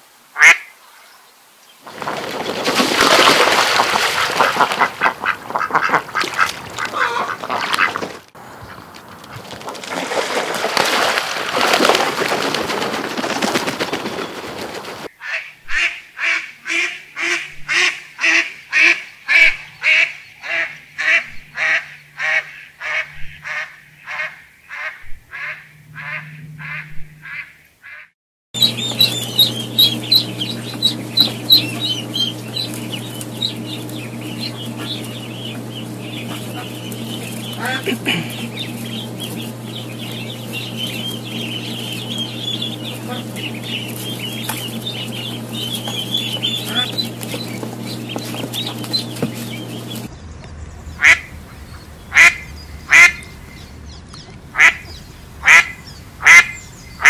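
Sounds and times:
ducks honking quacks: 0.4 - 0.7, 3.0 - 10.0, 14.4 - 50.1, 51.0 - 53.5, 54.5 - 57.0
steady low hum: 10.1 - 27.4, 28.6 - 57.0
high rapid peeping calls: 28.6 - 50.2, 50.9 - 57.0.

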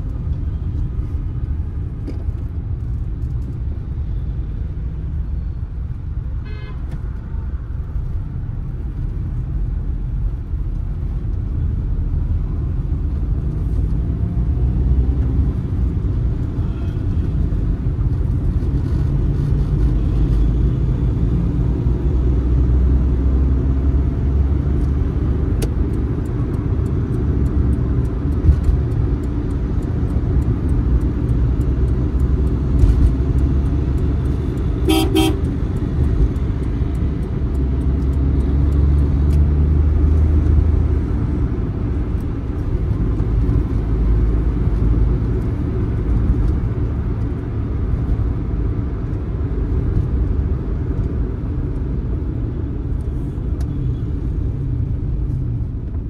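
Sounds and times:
car engine and tyre rumble: 0.0 - 56.0
vehicle horn toot: 6.4 - 6.9, 34.8 - 35.5.

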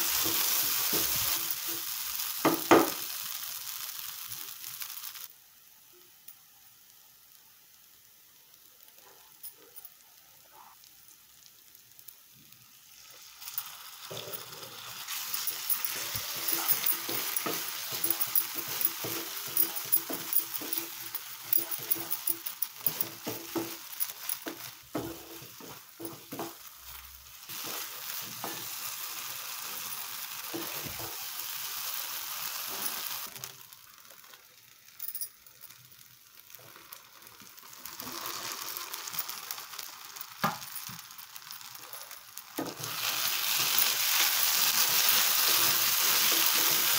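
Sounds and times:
paste sizzling in frying pan: 0.0 - 46.9
spatula scraping pan: 14.0 - 26.7.

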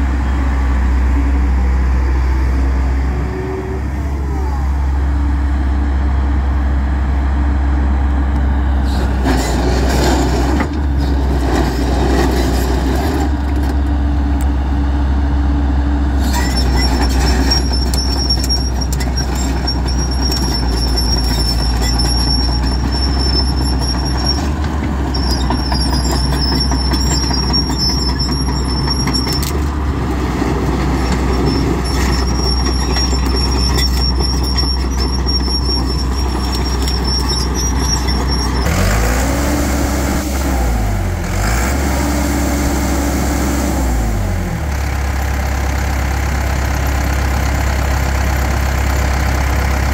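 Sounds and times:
excavator diesel engine: 0.0 - 49.9
thin high squeal: 16.2 - 29.5, 31.2 - 38.8.

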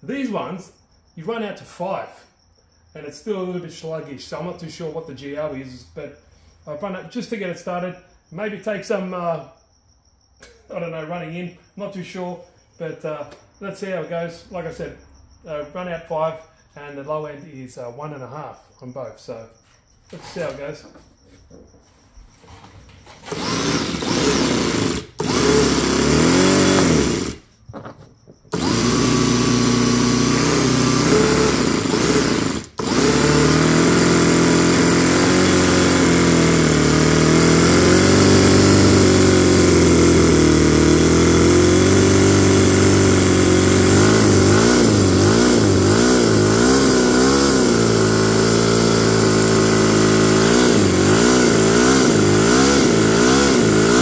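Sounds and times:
small engine starting and running: 22.5 - 27.6, 28.4 - 54.0.

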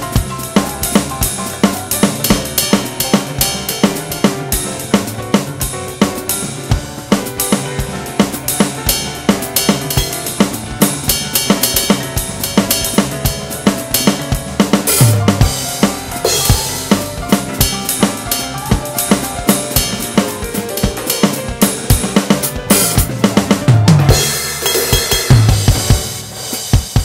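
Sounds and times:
electronic drum kit playing: 0.0 - 27.0
heavy low drum hit: 0.0 - 27.0
recorded rock song: 0.0 - 27.0
cymbal crash: 24.1 - 27.0.

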